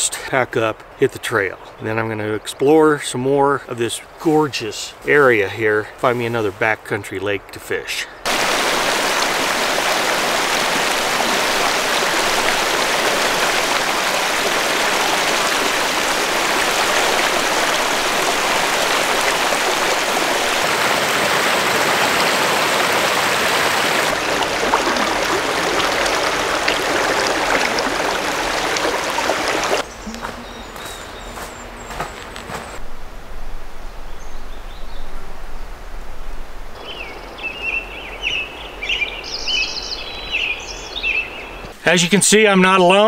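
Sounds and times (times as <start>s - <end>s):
creek rushing over rocks: 8.3s - 29.9s.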